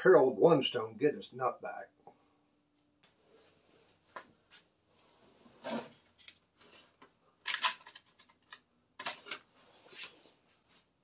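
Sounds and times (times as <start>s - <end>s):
hands rustling and scraping parts: 3.4s - 11.0s.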